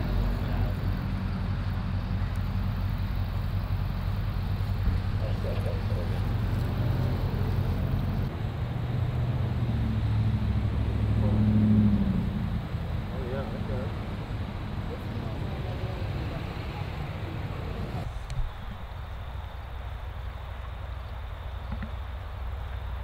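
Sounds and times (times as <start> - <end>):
faint voices: 0.0 - 1.6, 3.9 - 8.2, 13.0 - 18.8
vehicle engine humming: 0.0 - 23.0.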